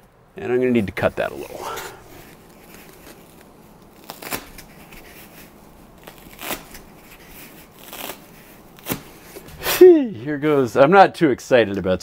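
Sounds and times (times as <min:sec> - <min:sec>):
snips cutting foam: 0:01.7 - 0:09.4.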